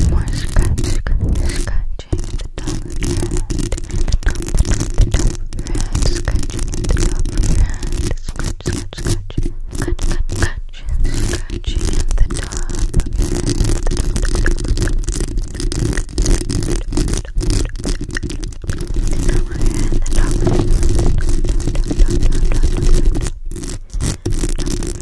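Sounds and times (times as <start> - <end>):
fingernails scratching microphone grille: 0.0 - 25.0
deep rumble: 10.8 - 25.0.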